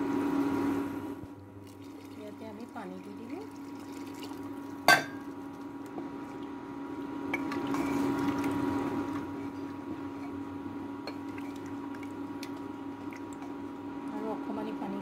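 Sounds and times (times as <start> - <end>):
steady hum: 0.0 - 15.0
liquid sloshing in a pot: 1.6 - 6.6, 7.3 - 10.4, 11.0 - 13.7.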